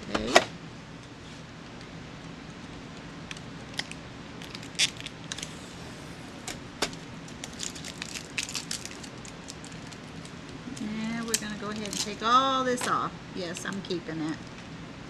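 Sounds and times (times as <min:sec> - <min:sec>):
tape peeling off plastic: 0:03.7 - 0:10.8.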